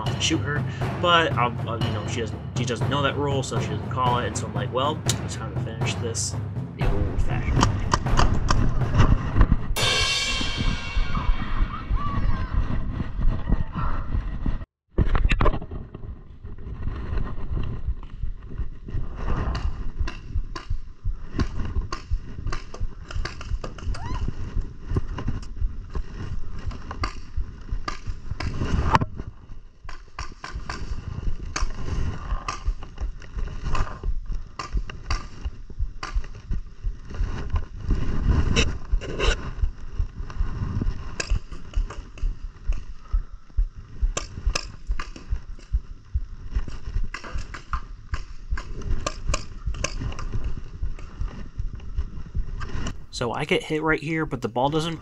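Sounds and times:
rumble of movement: 5.1s - 53.2s
wind on microphone: 8.1s - 29.8s, 33.2s - 53.1s.

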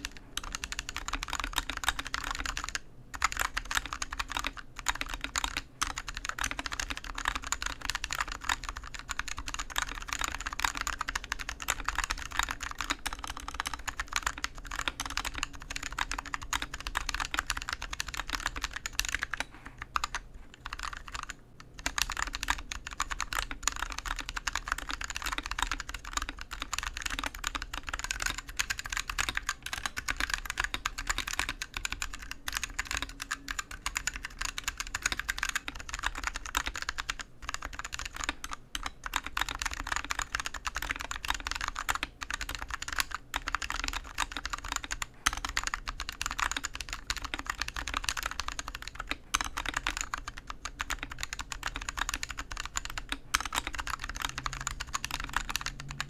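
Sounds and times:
fast typing on mechanical keyboard: 0.0s - 56.0s.

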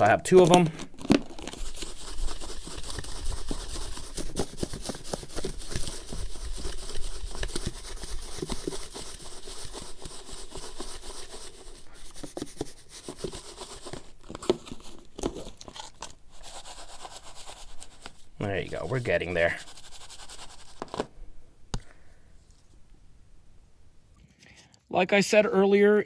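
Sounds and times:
fish shaken in plastic container: 0.9s - 20.8s.

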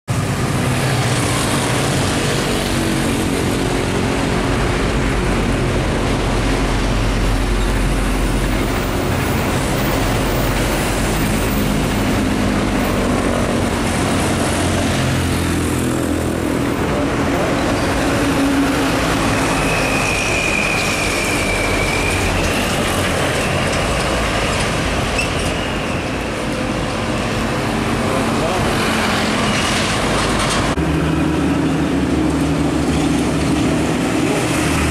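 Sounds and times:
diesel trucks passing: 0.1s - 34.9s
freight train rolling by: 0.1s - 34.9s.

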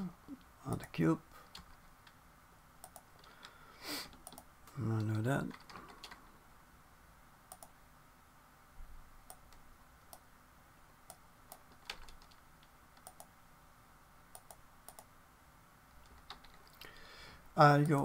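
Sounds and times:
computer mouse clicks: 2.8s - 6.2s, 7.5s - 7.8s, 9.2s - 10.3s, 11.1s - 13.3s, 14.3s - 15.1s
keyboard clicks: 2.8s - 6.2s, 7.5s - 7.8s, 11.1s - 13.3s, 14.3s - 15.1s, 16.0s - 16.9s.

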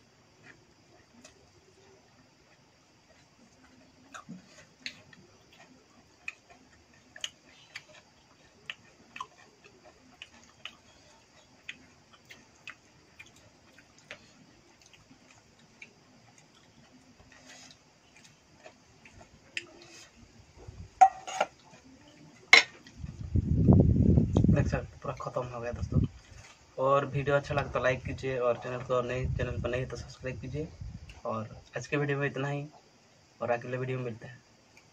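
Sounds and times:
chewing: 0.3s - 23.4s, 25.1s - 26.8s.

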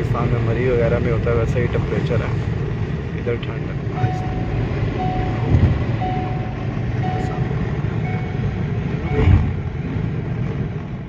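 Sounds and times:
car road and engine rumble: 0.0s - 11.0s
short electronic beeps: 3.9s - 9.6s.

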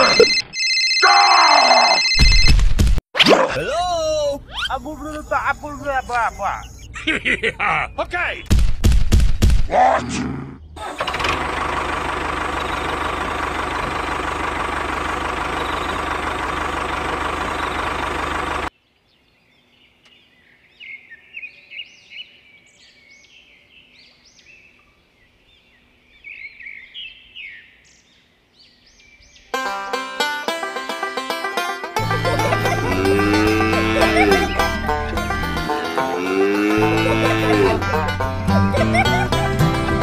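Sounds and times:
faint birds chirping: 3.9s - 8.5s, 15.3s - 16.6s, 18.7s - 29.6s
model tractor engine running: 4.2s - 6.6s, 10.8s - 18.7s, 32.0s - 35.7s.

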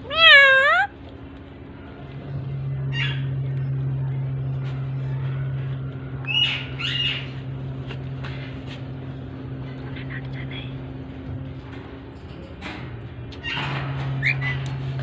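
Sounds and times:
parakeet calls: 0.0s - 0.9s, 2.9s - 3.4s, 6.3s - 7.5s
steady low hum: 0.0s - 15.0s.

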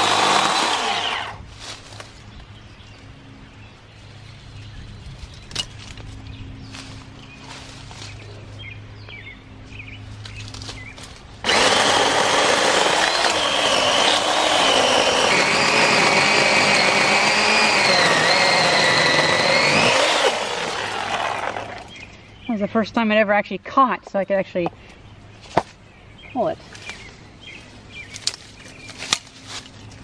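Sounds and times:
electric chainsaw cutting wood: 0.0s - 1.4s, 11.4s - 22.0s.

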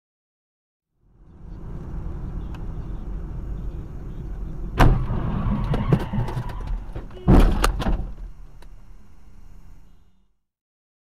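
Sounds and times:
road and engine rumble in car: 1.0s - 10.2s
car collision impact: 4.8s - 8.4s.

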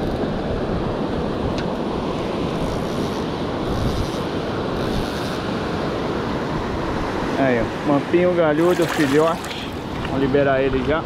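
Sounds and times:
wind buffeting microphone: 0.0s - 11.0s
sea surf rushing: 5.4s - 11.0s.

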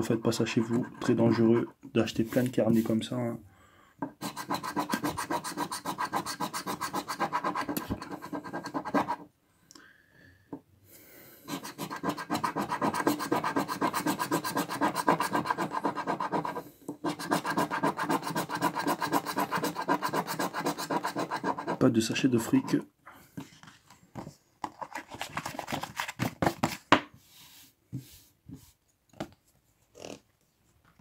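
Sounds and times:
coin scratching lottery ticket: 4.2s - 9.2s, 11.5s - 21.8s.

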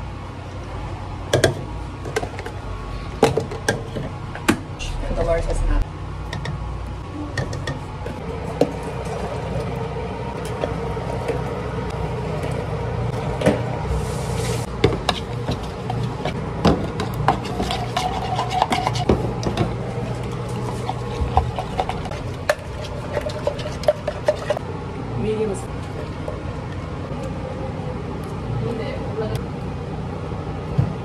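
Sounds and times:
low hum: 3.8s - 31.0s
metal stirrer clinking on cups: 17.3s - 19.1s, 20.8s - 24.6s.

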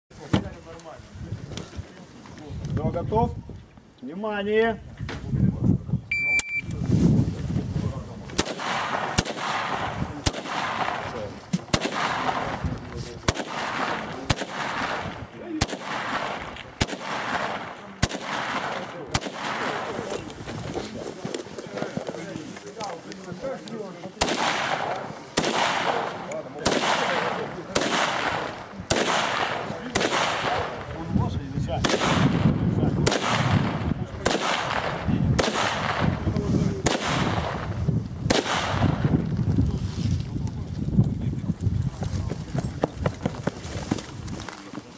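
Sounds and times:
rifle shots: 8.4s - 20.2s, 24.2s - 31.1s, 31.8s - 39.1s.

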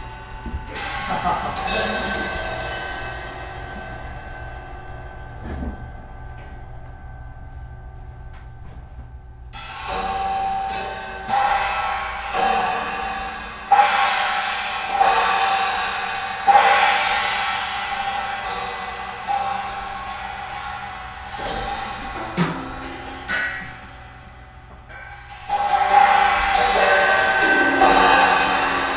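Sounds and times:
cymbals struck: 0.0s - 8.8s, 9.5s - 28.9s
steady drone: 0.0s - 28.9s.

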